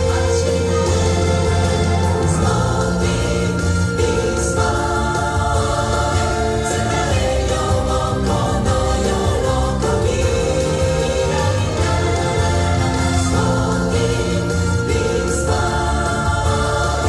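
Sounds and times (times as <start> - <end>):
pop music with group singing: 0.0 - 17.0.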